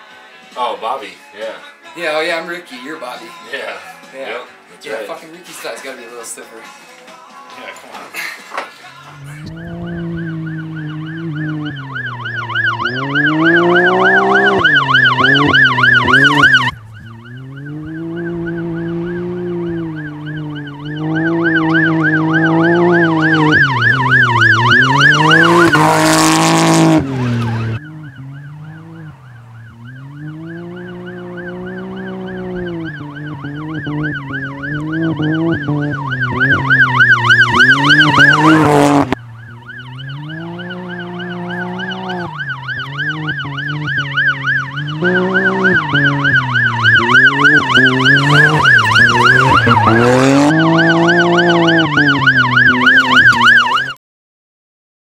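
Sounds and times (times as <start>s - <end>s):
vehicle passing close: 8.8s - 53.9s
engine revving: 8.9s - 54.0s
warbling high siren-like tone: 9.1s - 54.0s.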